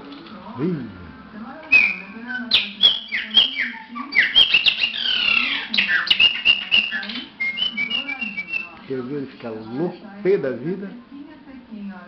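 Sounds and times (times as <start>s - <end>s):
bird singing whistled notes: 1.7s - 8.8s.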